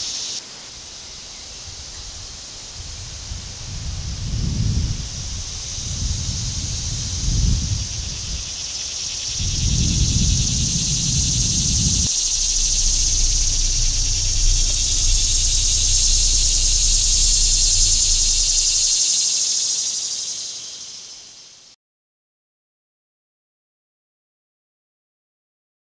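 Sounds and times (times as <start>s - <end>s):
cicadas buzzing: 0.0s - 21.7s
low rumble: 9.2s - 19.5s.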